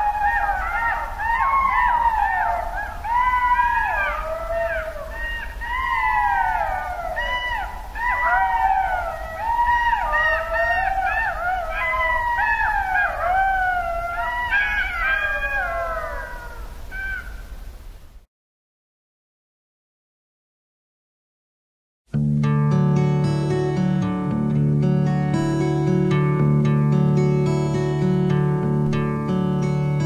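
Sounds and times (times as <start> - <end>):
jackals howling: 0.0 - 17.5.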